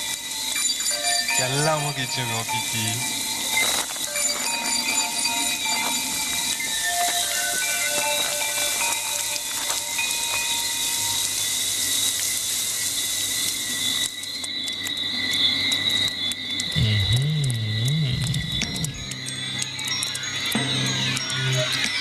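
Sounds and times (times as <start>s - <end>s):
night insects chirring: 0.0s - 22.0s
rain falling: 0.0s - 22.0s
scattered ticks: 0.0s - 22.0s
low wavering synth tone: 16.8s - 21.8s.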